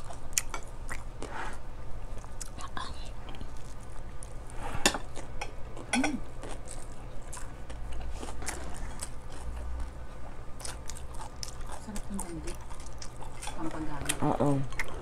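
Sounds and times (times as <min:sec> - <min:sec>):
chewing and mouth sounds: 0:00.0 - 0:01.3, 0:02.0 - 0:15.0
light clicks and taps on plates: 0:04.8 - 0:06.2.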